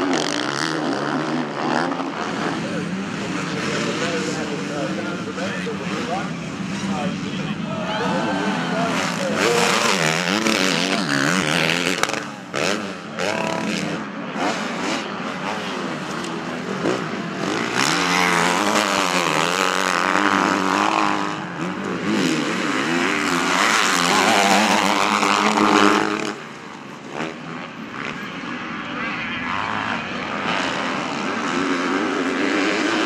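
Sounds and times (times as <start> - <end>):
motocross bike engines revving: 0.0 - 33.0.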